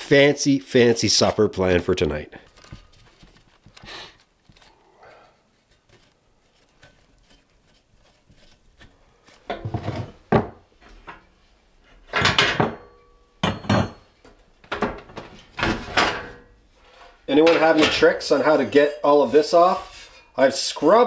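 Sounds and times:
metal burner grates clanking: 0:15.6 - 0:18.6.

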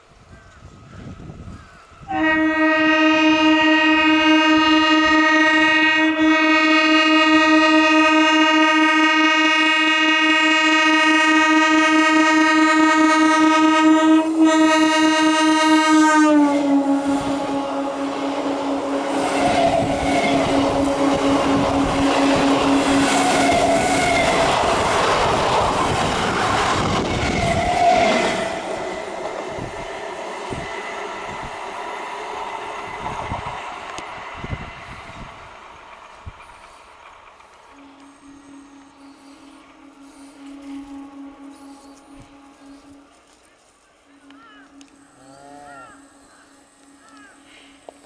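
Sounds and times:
train horn blast: 0:02.0 - 0:35.3, 0:37.6 - 0:48.0
train wheels rumbling and clattering: 0:18.0 - 0:38.0.

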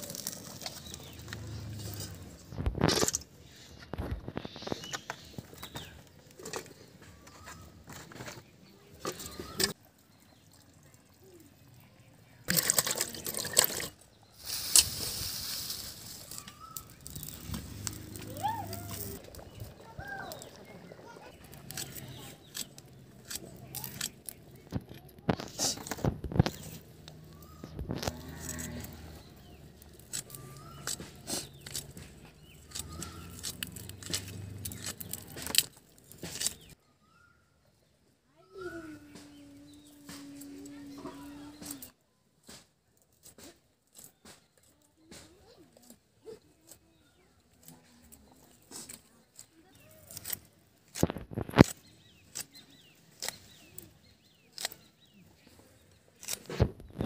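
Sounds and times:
small birds chirping: 0:00.0 - 0:57.0
blade slicing vegetable clicks: 0:21.6 - 0:24.7, 0:29.8 - 0:36.8, 0:48.8 - 0:53.8, 0:54.5 - 0:54.9, 0:56.2 - 0:56.8.

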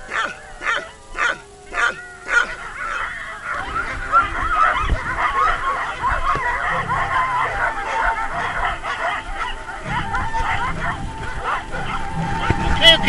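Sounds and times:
sled dogs barking and yelping: 0:00.0 - 0:13.0
low rumble of sled on snow: 0:03.5 - 0:13.0.

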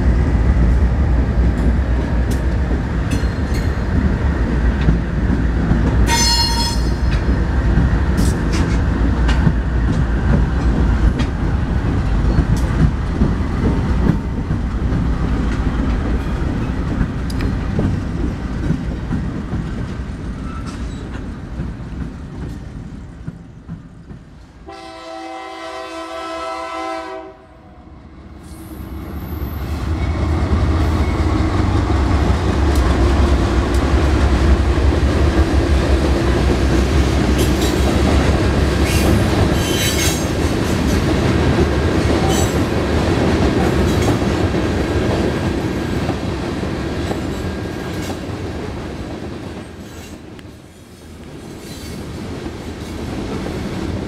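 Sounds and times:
diesel locomotives rumbling: 0:00.0 - 0:54.0
train wheel clatter: 0:01.4 - 0:24.5, 0:29.4 - 0:54.0
locomotive horn chord: 0:24.6 - 0:27.9.

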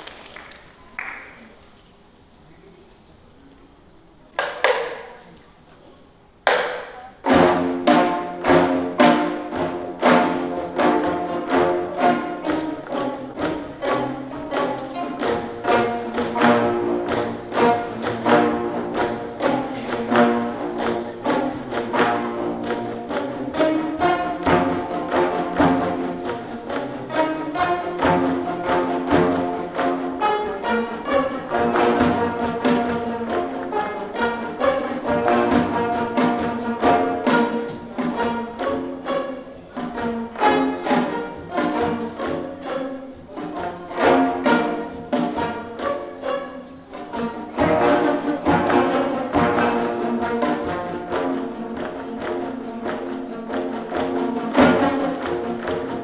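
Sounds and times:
drum: 0:04.4 - 0:05.2, 0:06.4 - 0:38.9, 0:47.0 - 0:56.0
plucked zither ensemble: 0:06.5 - 0:56.0.

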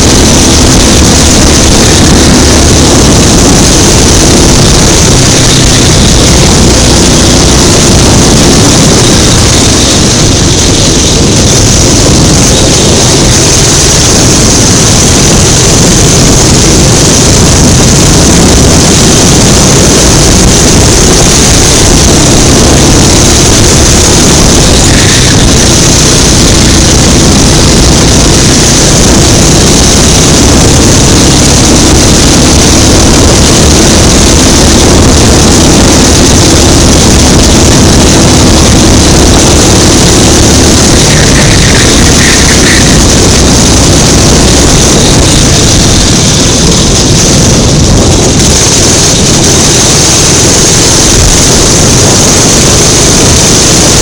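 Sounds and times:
go-kart engine running hard: 0:00.0 - 0:54.0.

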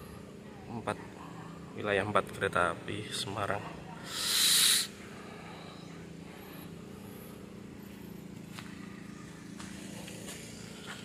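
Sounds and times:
low engine hum: 0:04.9 - 0:11.0.

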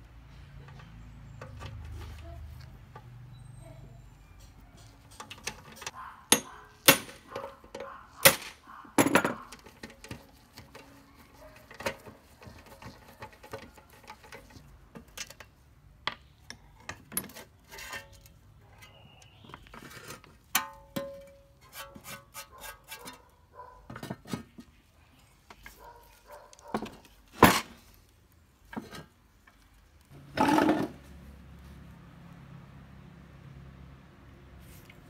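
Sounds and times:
metal parts clanking: 0:04.9 - 0:10.0.

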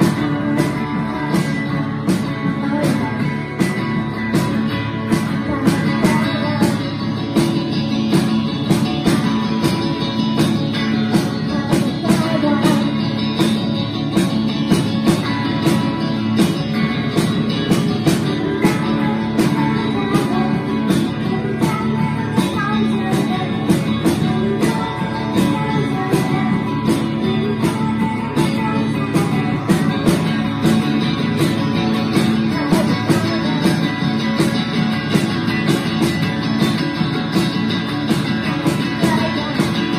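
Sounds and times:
drum beat: 0:00.0 - 0:39.9
rock guitars: 0:00.0 - 0:39.9.

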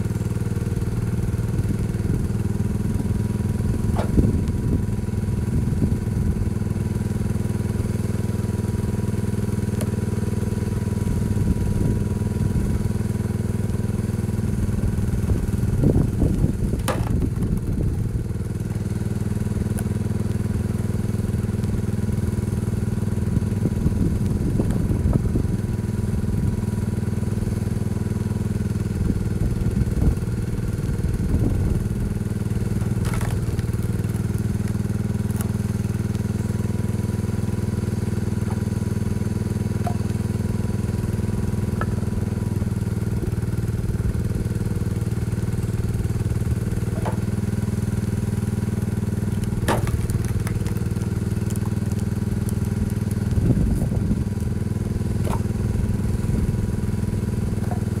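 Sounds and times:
tractor engine running: 0:00.0 - 0:58.0
firewood knocking and cracking: 0:01.8 - 0:05.0, 0:15.1 - 0:22.2, 0:31.8 - 0:42.8, 0:45.6 - 0:56.2.

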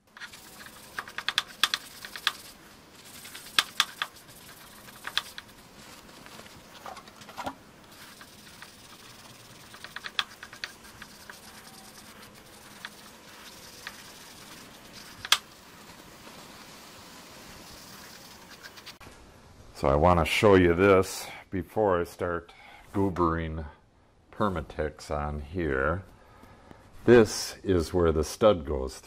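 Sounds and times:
rag wiping metal: 0:00.0 - 0:19.0.

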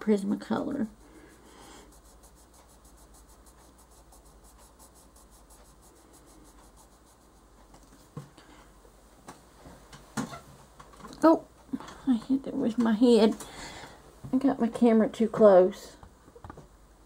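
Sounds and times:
coloured pencil scratching on paper: 0:00.0 - 0:08.2.

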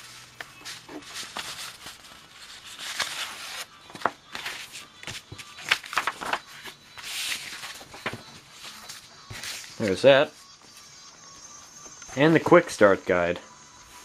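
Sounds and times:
paper rustling: 0:00.0 - 0:10.0.

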